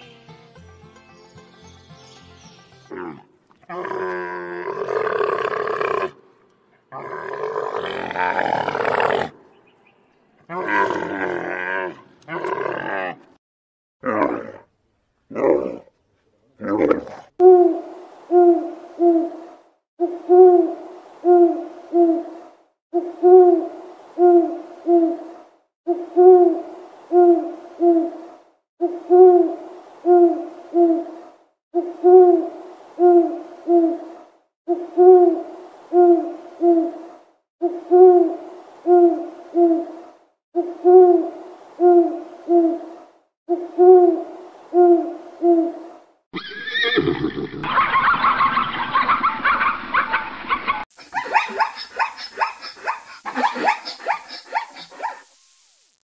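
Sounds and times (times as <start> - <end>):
owl hooting: 17.4 - 31.2, 31.8 - 40.0, 40.6 - 46.0, 51.0 - 55.1.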